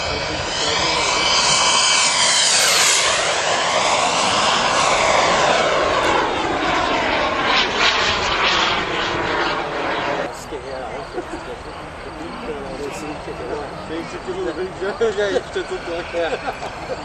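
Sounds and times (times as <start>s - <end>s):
model jet engine whine: 0.0s - 17.0s.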